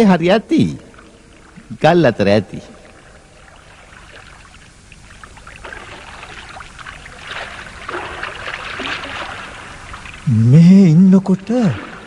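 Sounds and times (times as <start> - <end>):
water splashing in stream: 3.4 - 10.3, 11.5 - 12.0.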